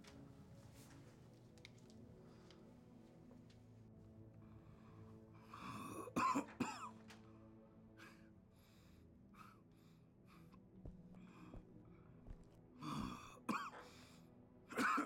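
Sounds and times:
man coughing hard: 6.2 - 6.9, 13.0 - 13.8, 14.7 - 15.0.

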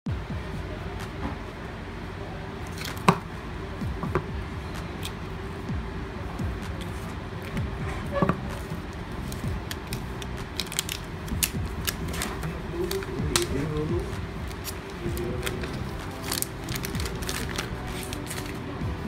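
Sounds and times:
low background hum: 0.1 - 19.0
plastic wrap crinkling: 9.2 - 18.7.

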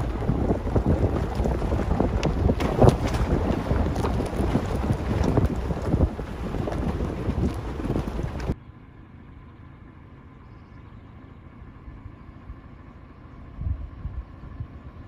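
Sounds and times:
wind buffeting microphone: 0.0 - 8.6
car road rumble: 0.0 - 15.0.

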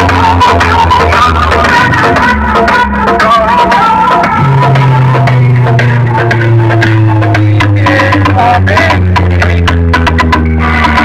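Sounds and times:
loud dance remix with heavy bass: 0.0 - 11.0.

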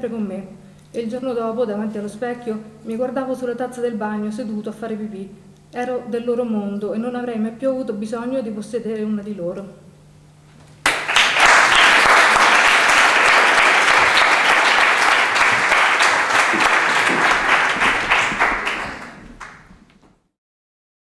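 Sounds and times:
audience applauding: 10.8 - 20.0.

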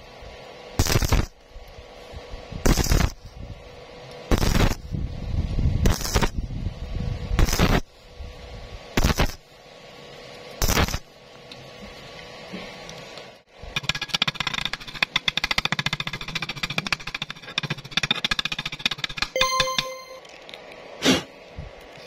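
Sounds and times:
welding arc bursts: 0.8 - 1.3, 2.6 - 3.2, 4.3 - 4.9, 5.8 - 6.4, 7.4 - 7.8, 9.0 - 9.4, 10.6 - 11.1.

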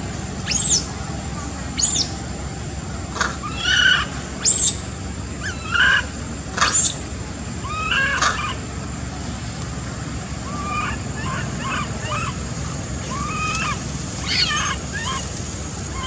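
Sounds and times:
steady background noise: 0.0 - 16.0
monkey shrill cries: 0.5 - 0.9, 1.8 - 2.2, 3.4 - 4.8, 5.4 - 7.0, 7.6 - 8.6, 10.4 - 12.4, 13.1 - 15.3.

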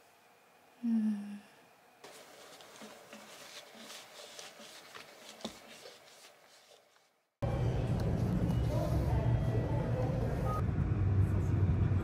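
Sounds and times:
woman humming hmm: 0.8 - 1.7
cloth rubbing: 2.0 - 7.3.

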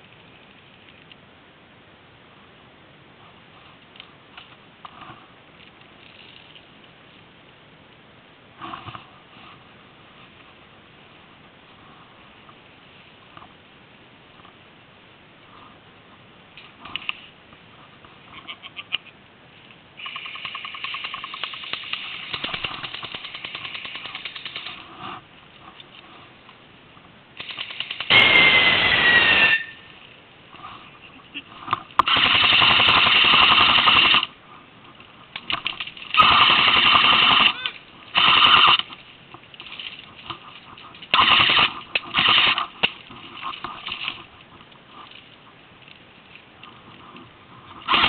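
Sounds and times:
airsoft rifle firing bursts: 20.0 - 24.8, 27.4 - 29.1, 32.0 - 34.3, 35.6 - 39.0, 41.1 - 42.8.

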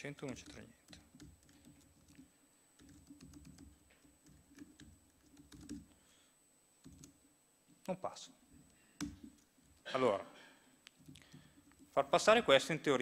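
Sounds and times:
laptop keyboard typing: 0.0 - 6.0, 6.8 - 7.2, 8.7 - 9.5, 10.9 - 12.2.

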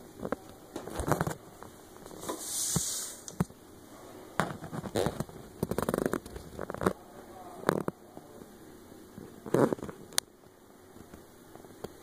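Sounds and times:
short hiss: 2.2 - 3.3.

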